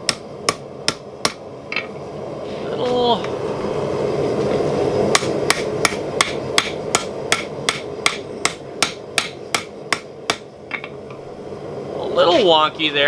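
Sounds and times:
hammer striking steel on anvil: 5.1 - 11.0.

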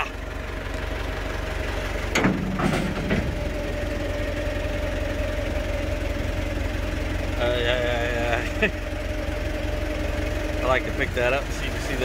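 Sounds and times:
engine running: 0.0 - 12.0
short clunks: 2.0 - 3.9
steady whine: 2.1 - 12.0.

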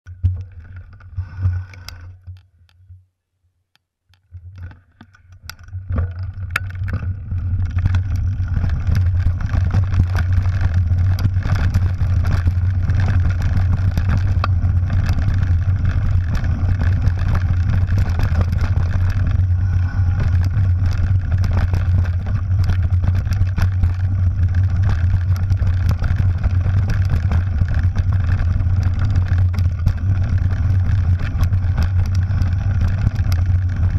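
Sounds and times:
bike rumble and rattle: 0.1 - 3.0, 4.2 - 33.9.

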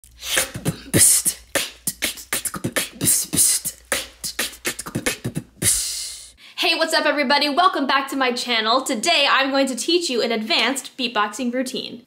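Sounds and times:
vocal beatboxing: 0.0 - 6.4.

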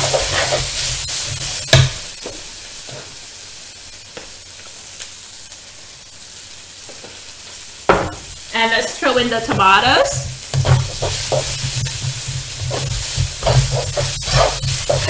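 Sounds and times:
spatula scraping and knocking pan: 0.0 - 3.2, 9.3 - 15.0
noodles sizzling in a wok: 0.0 - 15.0.

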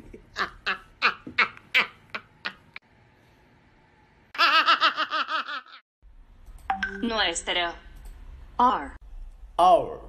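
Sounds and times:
boy laughing high-pitched: 4.4 - 5.8.

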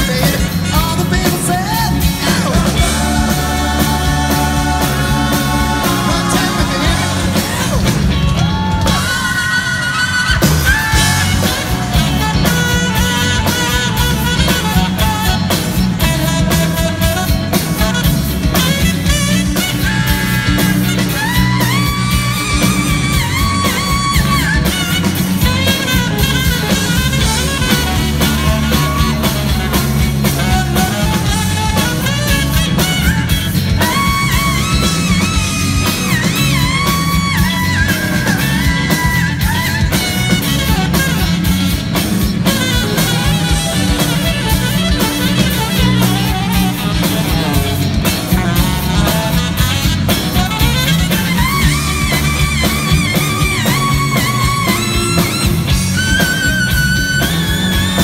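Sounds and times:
bass guitar: 0.0 - 58.0
drums: 0.0 - 58.0
electric guitars: 0.0 - 58.0
saxophone lead line: 0.0 - 58.0.

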